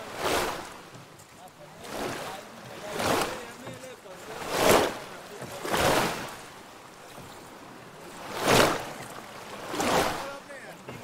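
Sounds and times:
water lapping against wooden boat: 0.0 - 11.0.

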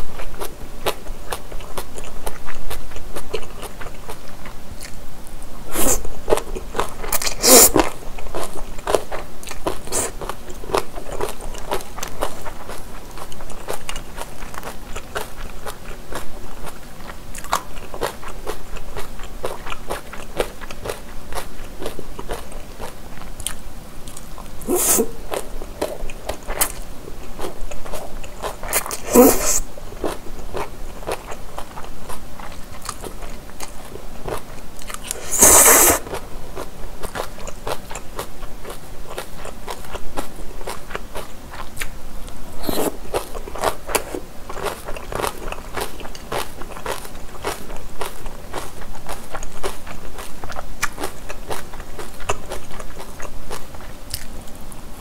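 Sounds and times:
wet chewing mouth clicks: 5.7 - 42.0, 42.6 - 54.3
noodle slurps: 7.2 - 7.8, 24.6 - 25.2, 28.7 - 29.7, 35.1 - 36.2, 42.6 - 43.0.

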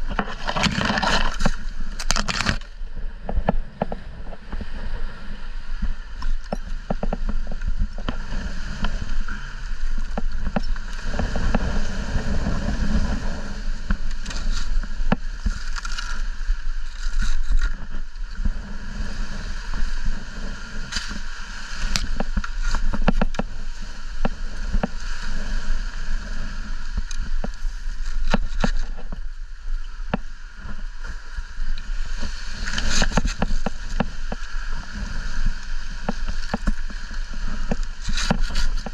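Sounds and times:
clicks and rustles: 0.0 - 4.7, 9.8 - 11.7, 13.8 - 18.5, 20.8 - 25.5, 26.9 - 29.3, 31.7 - 38.9
wind buffeting microphone: 0.0 - 38.9.

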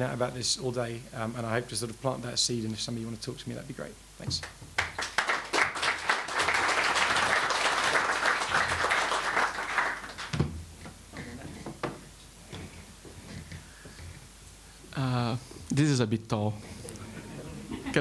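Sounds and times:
audience applauding: 4.8 - 10.4.

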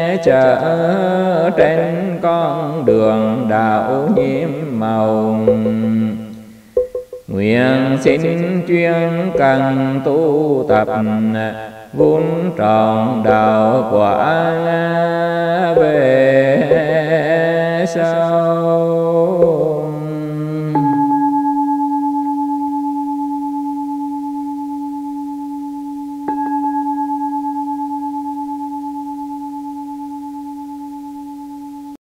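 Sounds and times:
monk chanting: 0.0 - 6.6, 7.3 - 21.3
bowl bell struck: 5.5 - 6.0, 20.8 - 31.8.

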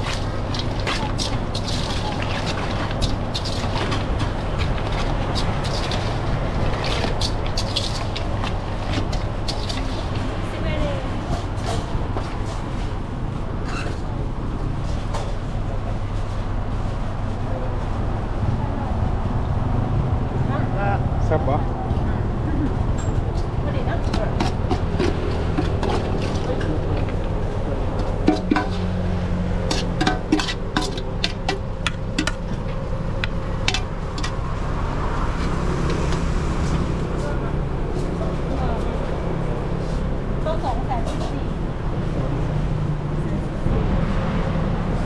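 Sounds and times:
utensils and dishes clinking: 0.0 - 10.3, 23.0 - 34.4
steady low rumble: 0.0 - 45.0
traffic hum: 0.0 - 45.0.

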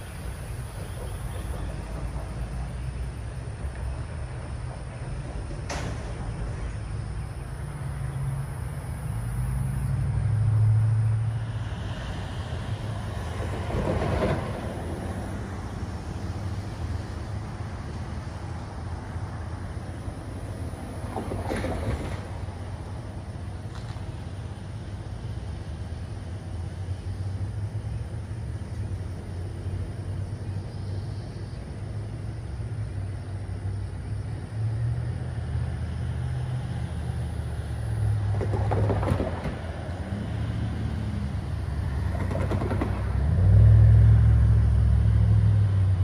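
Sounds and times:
vehicles passing by: 0.0 - 46.0.

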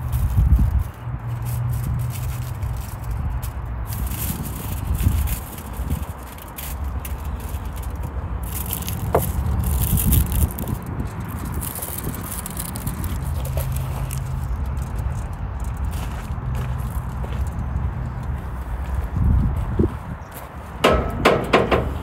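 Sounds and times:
aluminium foil crinkling: 0.0 - 16.1
wind rumble on microphone: 0.0 - 22.0.

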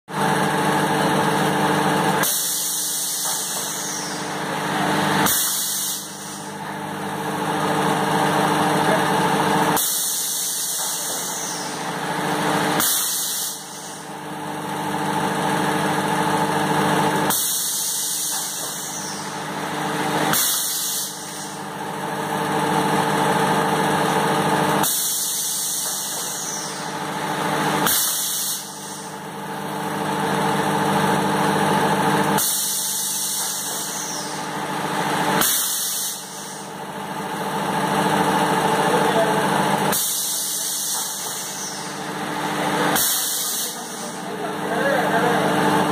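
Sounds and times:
machine motor hum: 0.1 - 45.9
hiss of air: 2.2 - 4.2, 5.2 - 6.5, 12.8 - 14.0, 17.3 - 19.1, 20.3 - 21.6.

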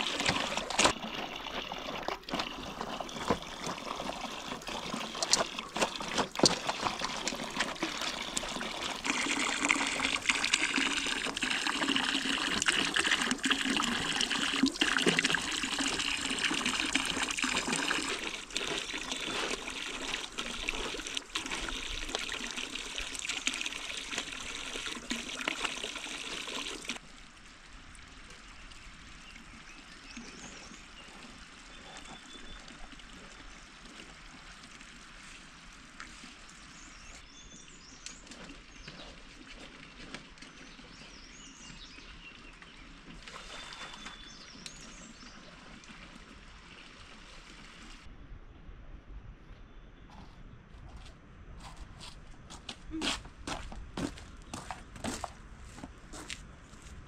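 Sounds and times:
water pouring: 0.0 - 48.1
faint high bird chirps: 43.4 - 45.4.

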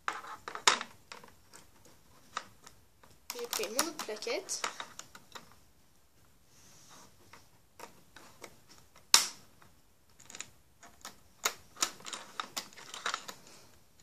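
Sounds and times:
plastic pegs clicking and tapping: 0.1 - 5.6.

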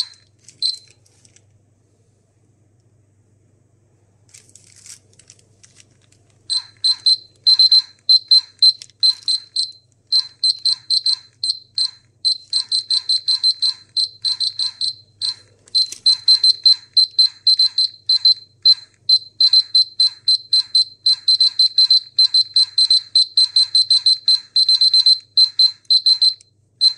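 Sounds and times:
high-pitched electronic beeps: 0.0 - 0.9, 6.5 - 26.9.

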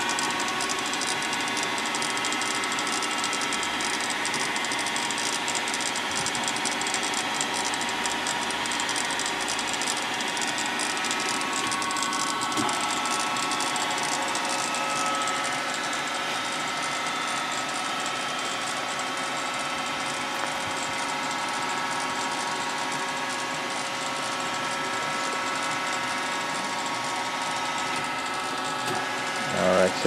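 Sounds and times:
grinder motors steady tones: 0.0 - 30.0.

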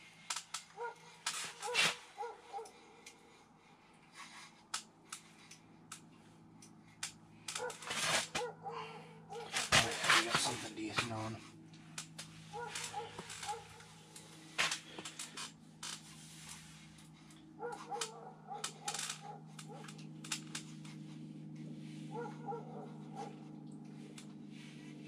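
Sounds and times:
steady low hum: 0.0 - 25.0
fishing reel cranking: 18.8 - 19.6.

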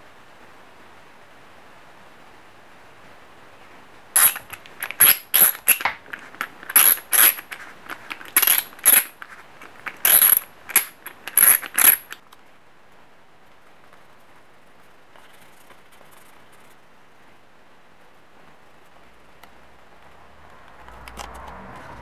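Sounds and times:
metal hand tools clicking: 4.2 - 12.2.

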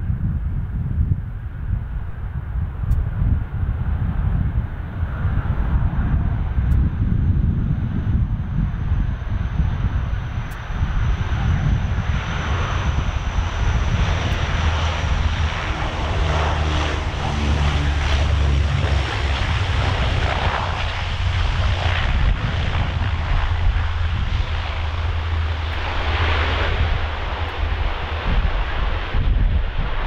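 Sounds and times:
propeller drone: 0.0 - 30.0
broad rushing noise: 11.2 - 30.0.

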